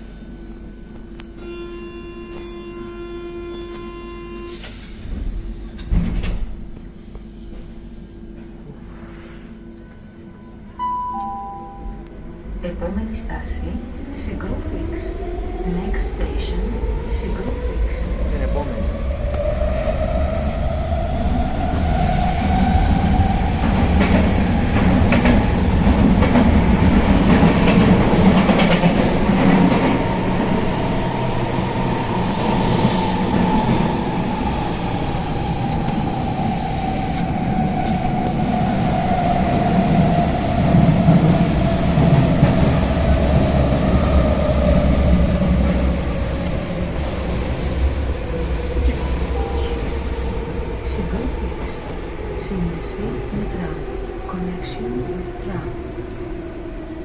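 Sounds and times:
train motor whine: 1.2 - 5.4
train wheels rumbling on track: 12.8 - 57.0.

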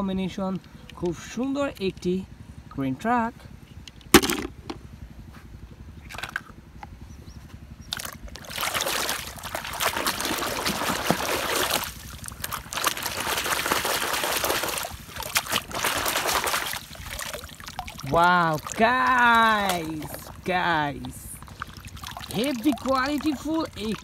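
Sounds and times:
water splashing and sloshing: 7.8 - 24.0
water drips: 7.9 - 24.0.

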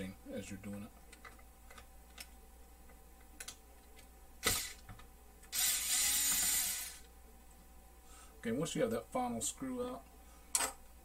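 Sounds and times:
screwdriver motor whirring: 4.4 - 4.8, 5.5 - 7.1.

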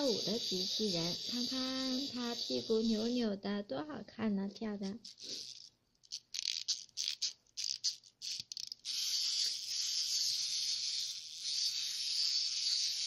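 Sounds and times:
wind-up toy ratcheting clicks: 5.0 - 13.0.

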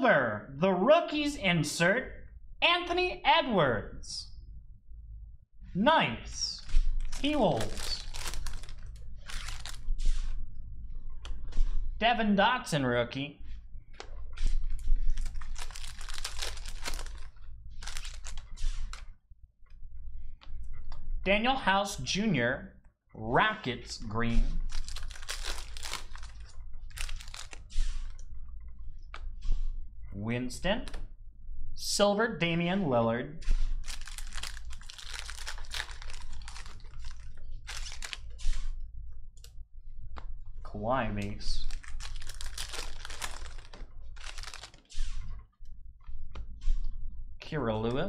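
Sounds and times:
cards being handled: 6.6 - 10.2, 15.1 - 19.0, 24.6 - 28.1, 33.8 - 38.3, 41.6 - 45.0
foil wrapper tearing and crinkling: 7.1 - 9.8, 15.2 - 18.5, 24.7 - 27.6, 33.8 - 38.3, 41.7 - 44.9.

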